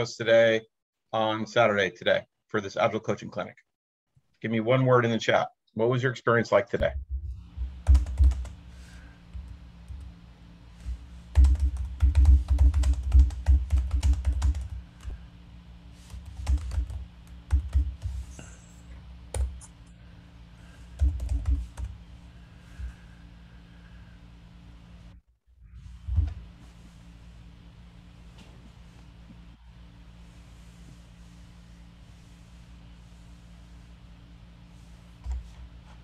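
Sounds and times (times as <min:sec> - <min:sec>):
faint steady hum: 0:04.6 - 0:36.0.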